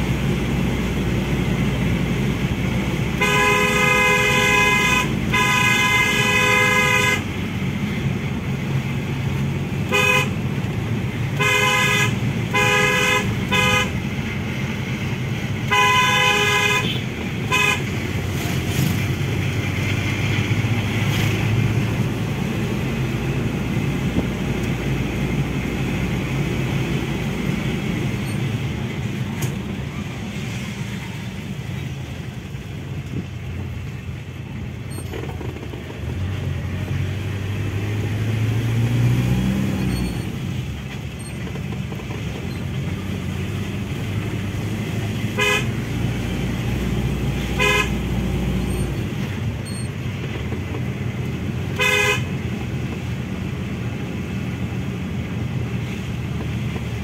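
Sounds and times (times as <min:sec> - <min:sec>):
road noise: 0:00.0 - 0:57.0
car horn tooting: 0:03.1 - 0:07.3, 0:09.8 - 0:10.4, 0:11.3 - 0:14.1, 0:15.6 - 0:18.0, 0:45.3 - 0:45.9, 0:47.4 - 0:48.1, 0:51.7 - 0:52.4.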